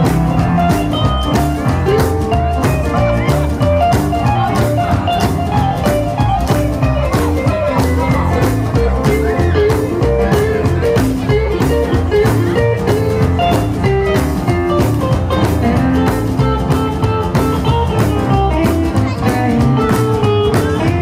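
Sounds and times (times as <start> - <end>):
electric guitar: 0.0 - 21.0
rock and roll band playing: 0.0 - 21.0.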